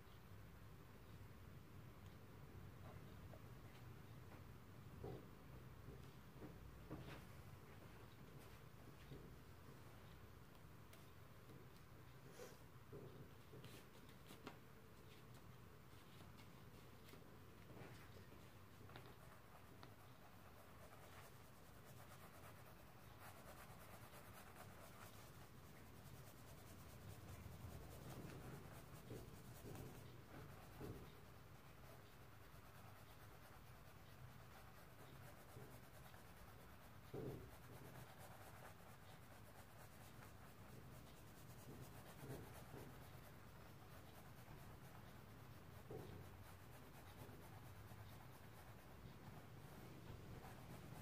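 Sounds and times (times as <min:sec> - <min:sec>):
paintbrush scratching on canvas: 0:17.8 - 0:51.0.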